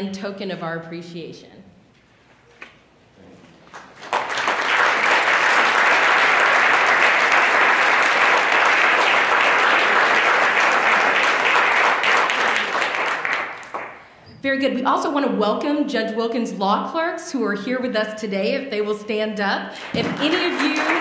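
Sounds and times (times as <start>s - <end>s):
audience applauding: 3.7s - 14.0s, 19.8s - 21.0s.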